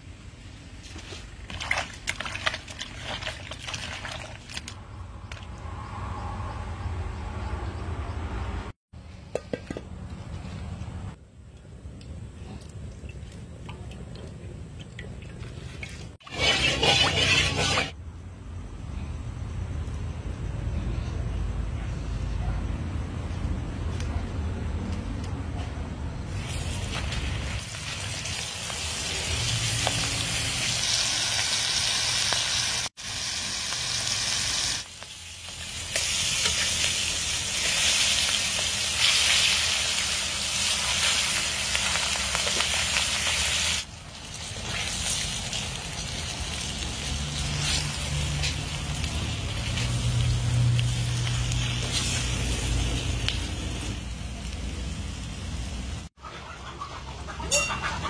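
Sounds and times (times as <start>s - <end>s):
food deep-frying in oil: 15.6s - 18.0s, 26.3s - 56.1s.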